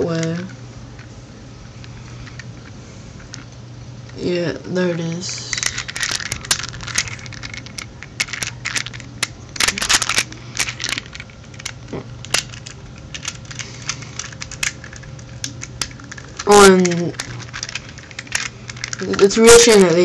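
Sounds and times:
plastic puzzle clicking: 0:05.5 - 0:20.0.

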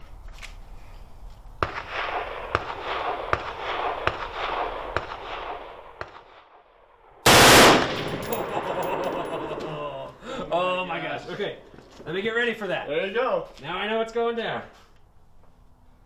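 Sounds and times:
single gunshots: 0:01.6 - 0:06.4, 0:07.2 - 0:08.5
automatic rifle fire: 0:07.2 - 0:09.4.

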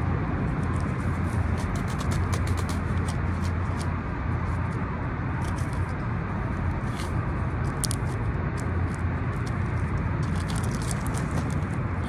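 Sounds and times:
low outdoor rumble: 0:00.0 - 0:12.0
scissors snipping feathers: 0:01.6 - 0:03.9.

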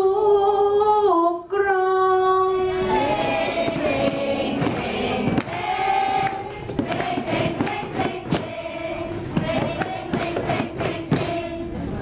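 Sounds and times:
group of voices singing: 0:02.4 - 0:11.9.

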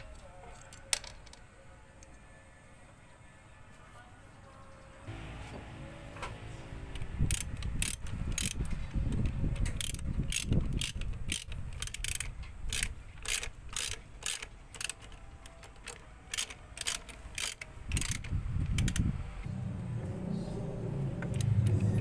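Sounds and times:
ratchet wrench clicking: 0:07.2 - 0:19.1.

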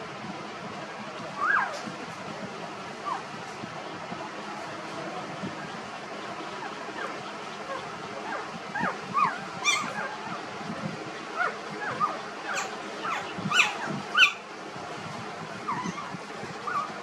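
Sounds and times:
puppies squeaking and whimpering: 0:01.4 - 0:01.8, 0:03.0 - 0:03.3, 0:06.6 - 0:10.5, 0:11.2 - 0:14.4, 0:15.7 - 0:17.0.

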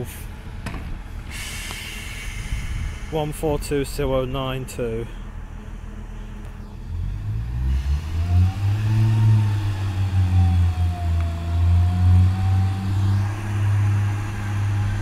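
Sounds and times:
diesel train engine revving: 0:00.0 - 0:15.0
train whine: 0:00.0 - 0:15.0.

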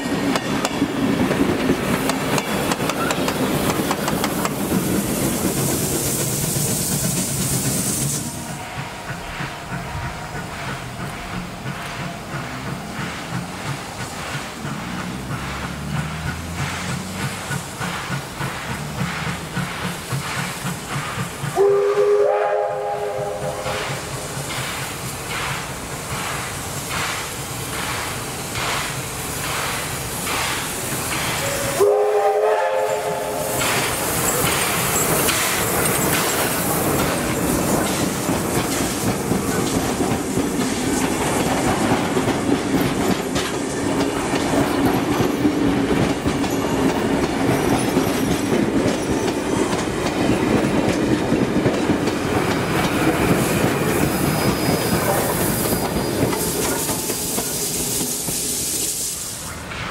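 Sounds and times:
steam locomotive chuffing: 0:00.0 - 0:59.9
train wheels clicking over rails: 0:00.0 - 0:59.9
steam whistle: 0:21.5 - 0:23.9, 0:31.4 - 0:33.6.

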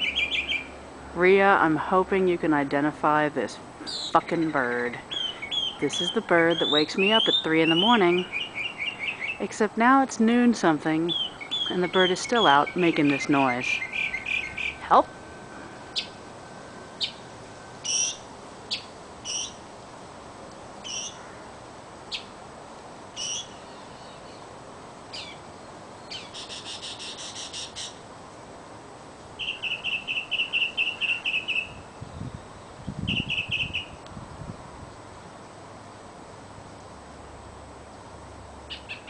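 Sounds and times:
songbird calling and trilling: 0:00.0 - 0:00.8, 0:03.8 - 0:09.7, 0:11.0 - 0:15.1, 0:15.9 - 0:16.2, 0:17.0 - 0:17.2, 0:17.8 - 0:19.6, 0:20.8 - 0:21.3, 0:22.1 - 0:22.3, 0:23.2 - 0:24.5, 0:25.1 - 0:25.4, 0:26.0 - 0:28.0, 0:29.4 - 0:34.0, 0:38.7 - 0:39.0.

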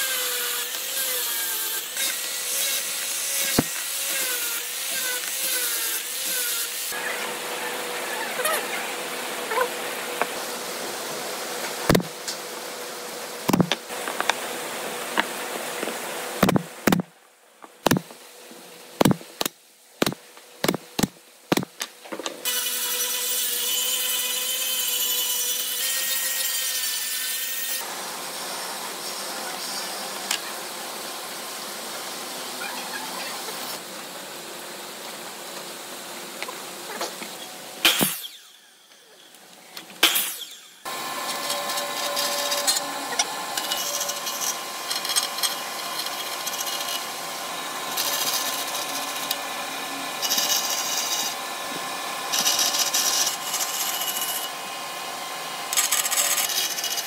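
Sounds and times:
nail gun shots: 0:37.8 - 0:38.2
power tool whining: 0:40.0 - 0:57.0.

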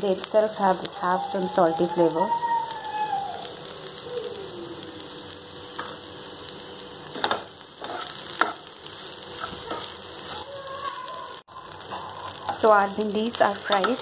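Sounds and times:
vegetables sizzling in oil: 0:00.0 - 0:14.0
spatula scraping a pan: 0:07.1 - 0:10.5.

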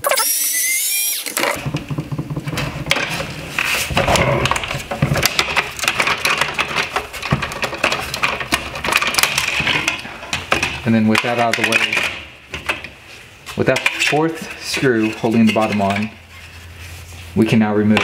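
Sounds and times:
screw squealing: 0:00.0 - 0:01.4.

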